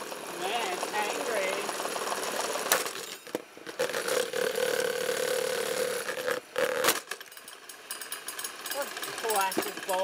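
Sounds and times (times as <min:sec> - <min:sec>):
stand mixer motor whining: 0:00.0 - 0:06.6.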